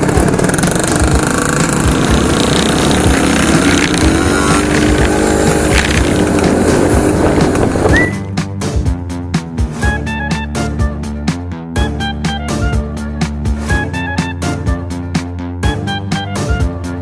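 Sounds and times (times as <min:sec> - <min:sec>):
scooter engines running: 0:00.0 - 0:08.2
music: 0:00.0 - 0:17.0
wind rushing over microphone: 0:02.0 - 0:08.2.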